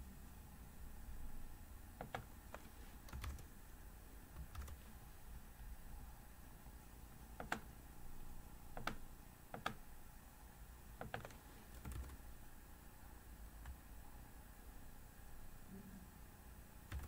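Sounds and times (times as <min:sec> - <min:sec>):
computer mouse clicks: 0:02.0 - 0:03.5, 0:07.4 - 0:07.7, 0:08.7 - 0:09.8, 0:11.0 - 0:12.2.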